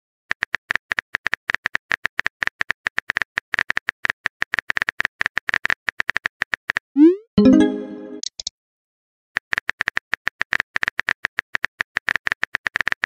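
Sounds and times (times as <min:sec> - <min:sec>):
pitched chime: 0:07.0 - 0:08.2.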